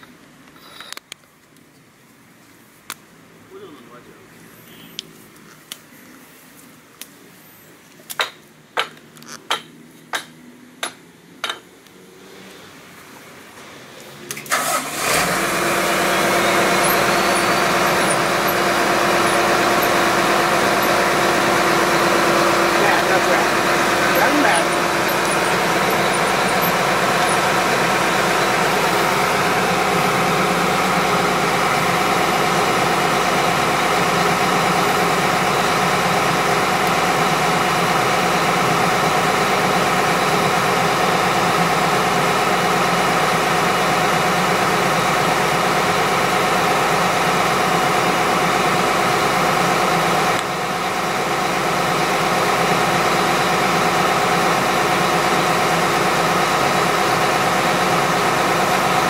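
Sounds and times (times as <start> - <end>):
drilling rig engine running: 14.4 - 59.0.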